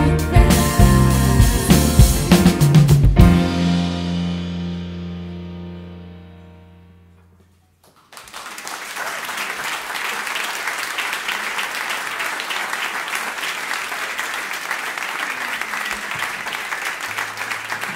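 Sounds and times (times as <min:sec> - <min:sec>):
live music: 0:00.0 - 0:06.8
audience applause: 0:07.8 - 0:17.9.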